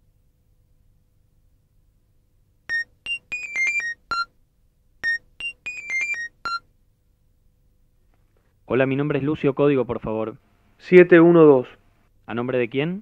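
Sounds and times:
beeping phone ringtone melody: 2.7 - 4.3, 5.0 - 6.6.

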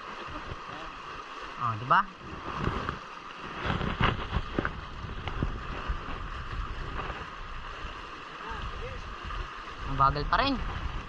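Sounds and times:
water lapping against hulls: 0.0 - 11.0
wind on microphone: 2.2 - 11.0.

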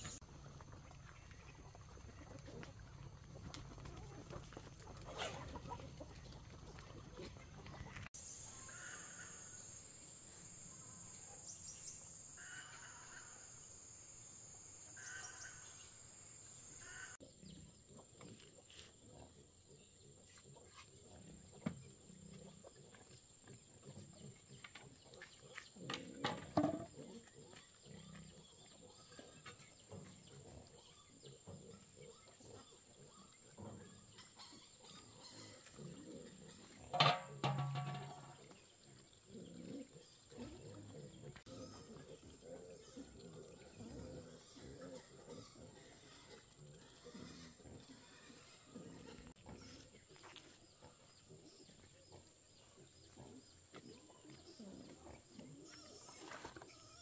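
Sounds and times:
pigs grunting and squealing: 16.8 - 57.0.

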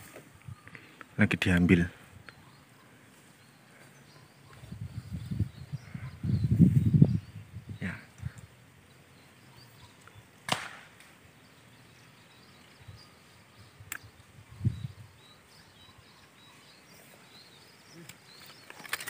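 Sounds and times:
faint bird chirps: 0.0 - 10.4, 11.3 - 19.0
sharp click: 13.9 - 14.1.

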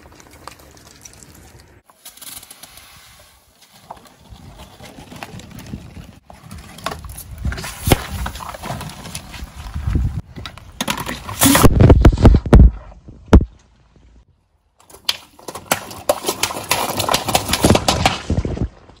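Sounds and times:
plastic cups cracking: 14.8 - 18.6
plastic bottle crushed by tyre: 15.0 - 18.7.

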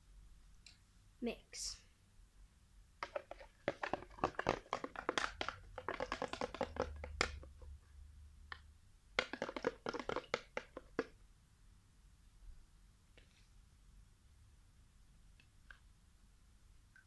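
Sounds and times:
spoon scraping plastic bucket: 3.0 - 7.7, 9.2 - 11.0.

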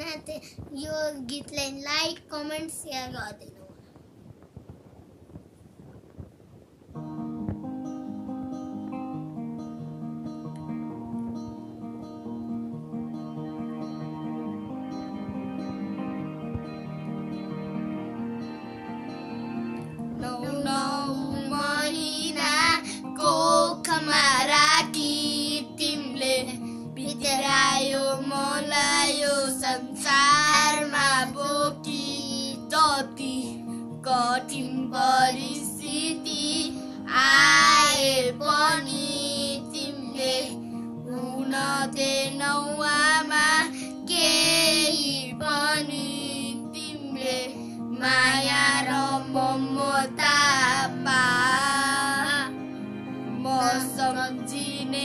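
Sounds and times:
instrumental accompaniment: 6.9 - 55.0
boys singing: 20.2 - 33.4, 34.0 - 40.5, 41.2 - 52.6, 53.4 - 55.0.

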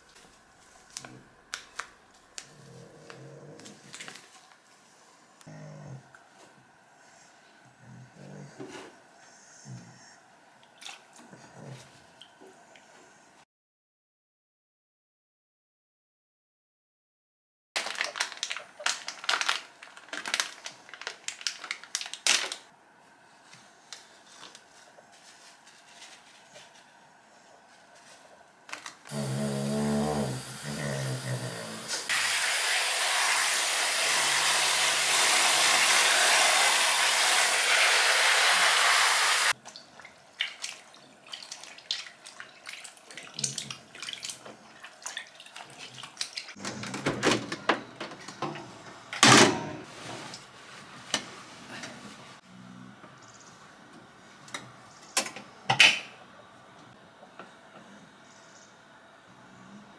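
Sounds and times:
tap water gushing into tub: 29.1 - 46.5.

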